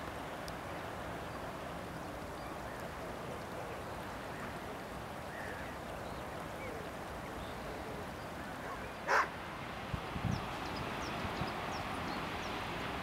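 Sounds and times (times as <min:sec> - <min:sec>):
outdoor background noise by river: 0:00.0 - 0:13.0
faint bird calls: 0:01.9 - 0:09.3.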